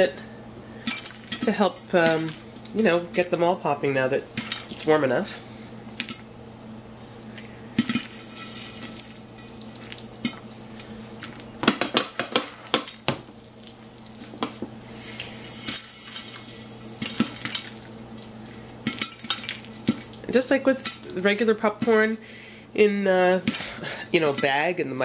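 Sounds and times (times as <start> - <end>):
oil sizzling: 0.7 - 22.7
popcorn kernels popping: 7.8 - 22.2.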